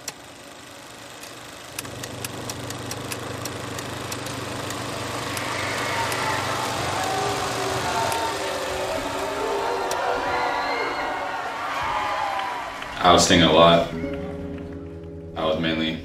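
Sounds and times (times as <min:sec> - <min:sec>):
sharp clicks: 0:01.2 - 0:10.1.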